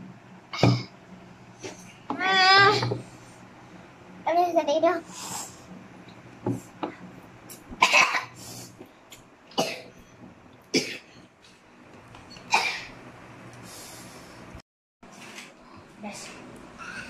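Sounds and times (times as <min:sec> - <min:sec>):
child coughing: 0:07.8 - 0:08.4, 0:09.6 - 0:09.9, 0:10.8 - 0:11.1, 0:12.5 - 0:12.9.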